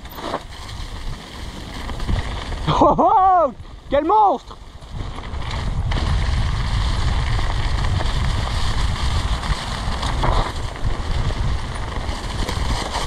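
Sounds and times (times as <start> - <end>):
bike tyres rolling over dry leaves: 0.0 - 13.0
wind buffeting microphone: 4.6 - 13.0.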